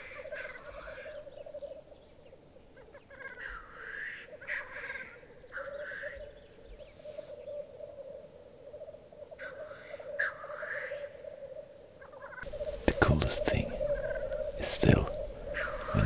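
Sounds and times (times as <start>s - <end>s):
black grouse bubbling chorus: 0.0s - 16.0s
short high bird calls: 12.0s - 16.0s.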